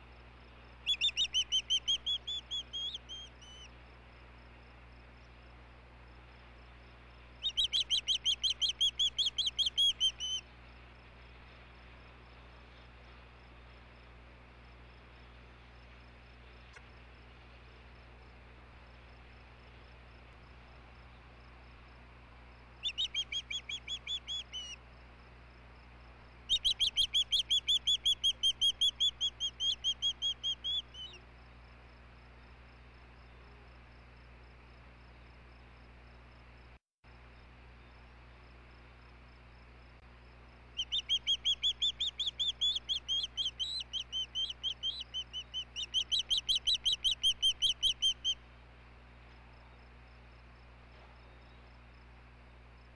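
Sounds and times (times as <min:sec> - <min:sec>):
osprey whistled chirps: 0:00.8 - 0:03.7, 0:07.4 - 0:10.5, 0:22.8 - 0:24.8, 0:26.5 - 0:31.2, 0:40.7 - 0:48.4.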